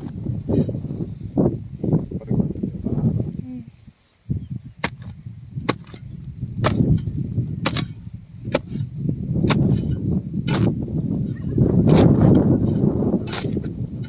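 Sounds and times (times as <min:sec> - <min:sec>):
scraping rustle of earth: 0:03.0 - 0:14.0
hand hoe chopping soil: 0:04.8 - 0:14.0.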